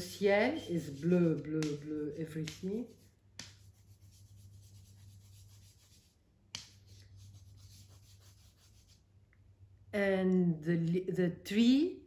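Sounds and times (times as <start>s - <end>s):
drawing tool rubbing on paper: 0.0s - 9.1s.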